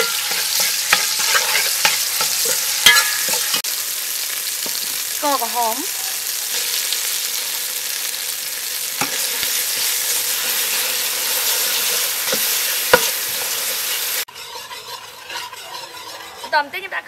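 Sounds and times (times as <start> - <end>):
ladle clinking against pot: 0.0 - 3.6
paste sizzling in oil: 0.0 - 17.0.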